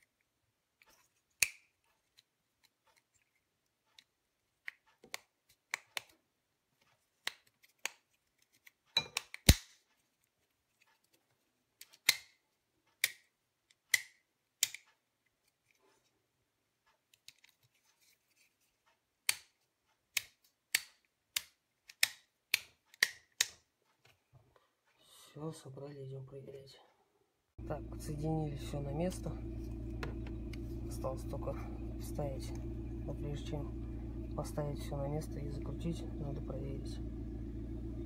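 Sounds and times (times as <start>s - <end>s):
plastic switch clicks and snaps: 13.8s - 14.9s, 20.2s - 23.6s.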